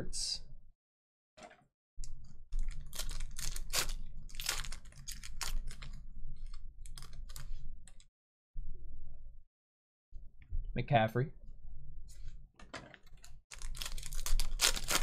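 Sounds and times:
foil wrapper tearing and crinkling: 2.6s - 7.5s, 13.5s - 15.0s.

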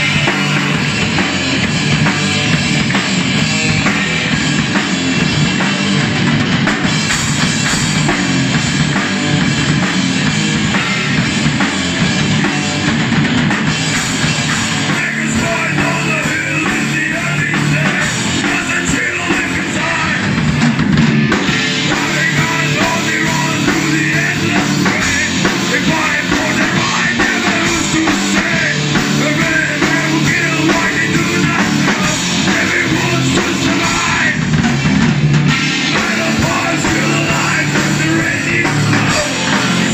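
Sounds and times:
drum kit: 0.0s - 39.9s
electric bass: 0.0s - 39.9s
electric guitars: 0.0s - 39.9s.

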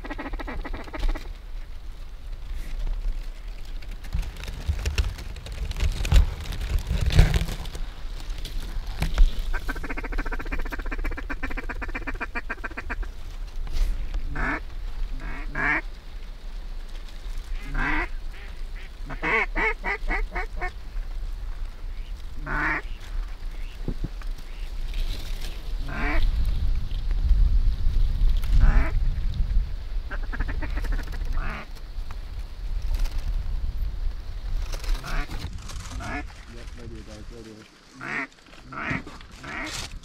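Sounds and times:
wind rumble: 0.0s - 40.0s
mallard quacking: 14.3s - 14.6s, 15.2s - 15.8s, 17.6s - 20.7s, 22.4s - 23.0s, 25.9s - 26.2s, 36.0s - 36.3s, 38.0s - 39.8s.

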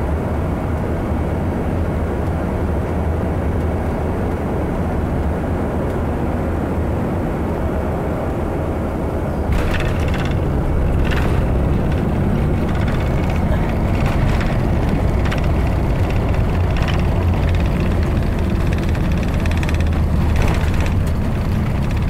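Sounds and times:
jet engine and airflow rumble: 0.0s - 22.0s
brief rattles: 9.5s - 22.0s.

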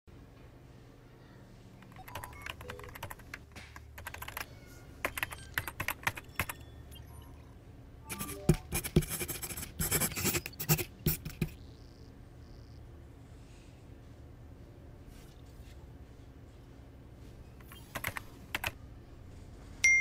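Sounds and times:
typing on computer keyboard: 1.8s - 6.6s, 17.6s - 18.8s.

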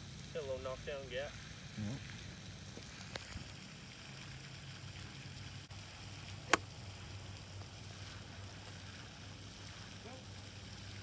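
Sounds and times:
golf club striking ball: 6.5s - 6.7s.

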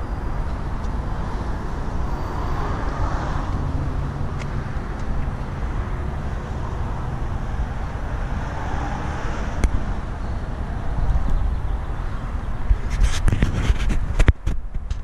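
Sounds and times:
low rumble of traffic: 0.0s - 15.0s.

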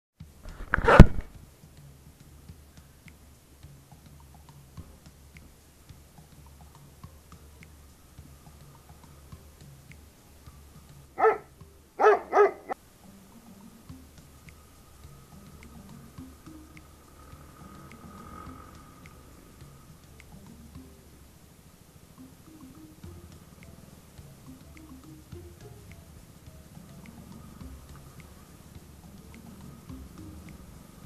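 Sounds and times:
dog barking: 11.2s - 12.8s.

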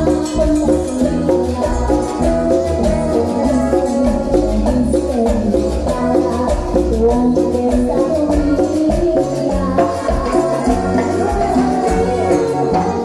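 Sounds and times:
cumbia band playing: 0.0s - 13.0s.

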